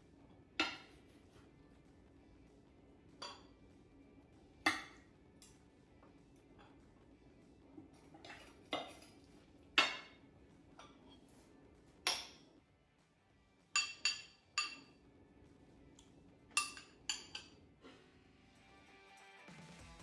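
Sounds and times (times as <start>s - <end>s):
metal cutlery clinking on ceramic bowls: 7.9s - 10.2s, 12.0s - 12.5s, 13.8s - 15.0s, 16.0s - 17.6s.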